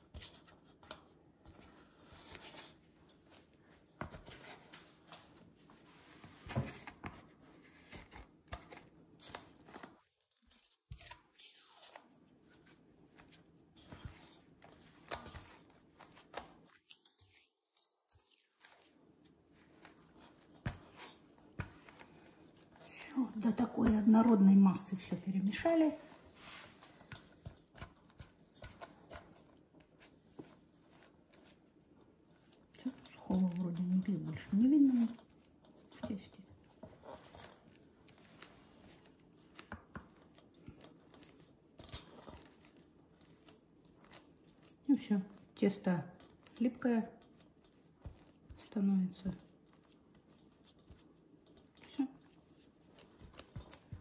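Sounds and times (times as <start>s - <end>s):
spatula scraping dough in metal bowl: 32.3s - 54.0s.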